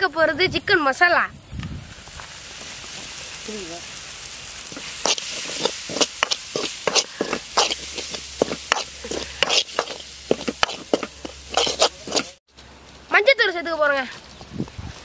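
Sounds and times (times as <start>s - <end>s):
food sizzling: 0.6s - 12.4s
ladle scraping metal pot: 4.7s - 12.4s.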